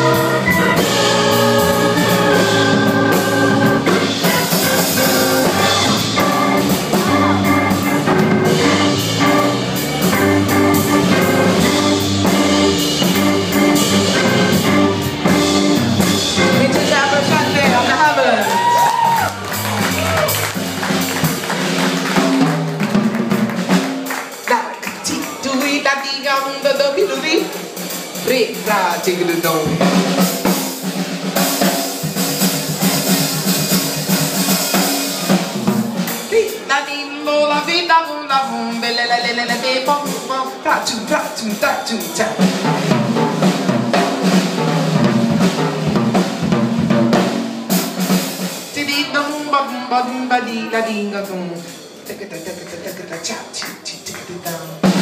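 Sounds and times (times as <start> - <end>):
sustained keyboard chords: 0.0 - 18.3
drum kit and cymbals: 0.0 - 36.7, 38.4 - 55.0
low-pitched band music: 0.0 - 55.0
woman singing: 36.3 - 42.5, 48.8 - 50.9.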